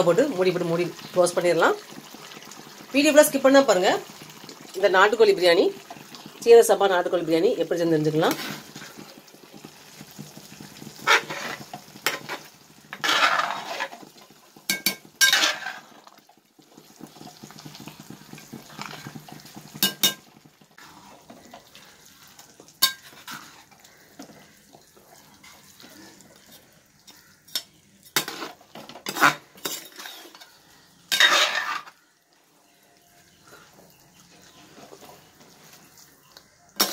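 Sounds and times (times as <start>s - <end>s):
pot simmering sizzle: 0.0s - 36.9s
metal ladle scraping pot: 11.0s - 14.1s, 14.7s - 16.1s, 22.8s - 24.5s, 27.1s - 32.0s.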